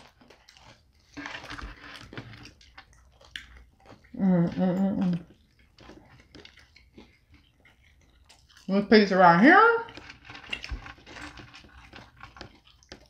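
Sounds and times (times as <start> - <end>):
chewing and biting pizza: 0.0 - 8.9, 9.8 - 13.0
person humming mmm: 4.1 - 5.3.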